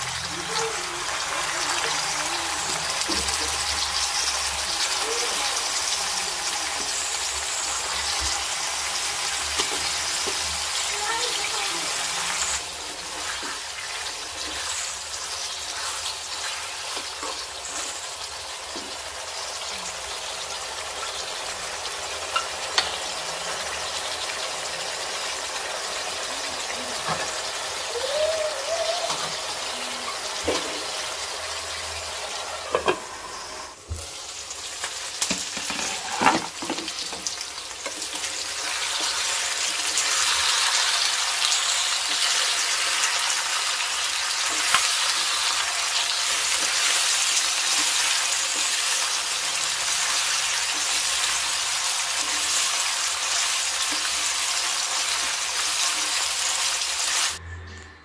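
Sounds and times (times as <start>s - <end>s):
chicken sizzling in oil: 0.0s - 57.4s
spatula scraping a pan: 35.6s - 36.7s.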